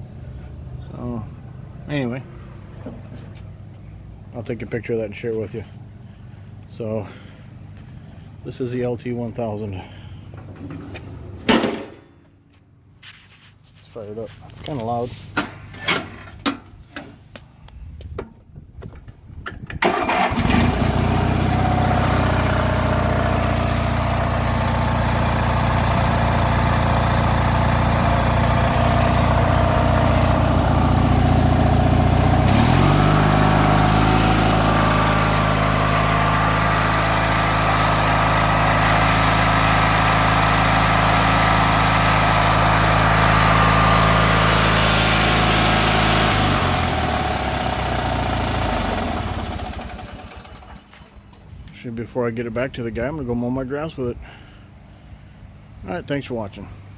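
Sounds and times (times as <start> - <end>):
lawn tractor engine running: 18.8 - 51.7.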